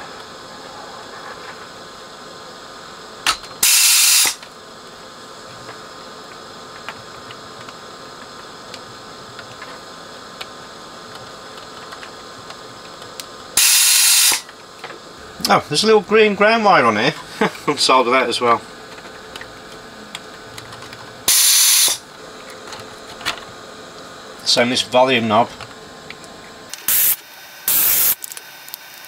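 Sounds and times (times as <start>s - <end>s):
faint steady hum: 0.0s - 29.0s
hissing suction bursts: 3.6s - 4.4s, 13.6s - 14.4s, 21.3s - 22.0s, 26.8s - 28.2s.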